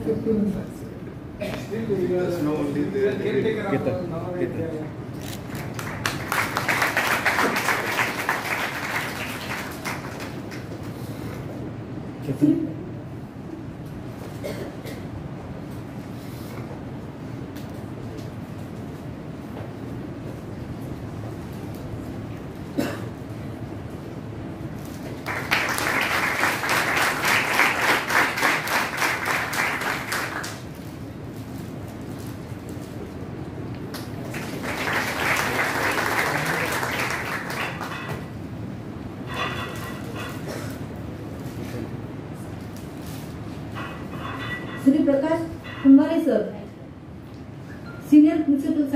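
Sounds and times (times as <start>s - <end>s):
audience applauding: 5.4s - 10.8s, 25.1s - 30.7s, 33.9s - 38.3s.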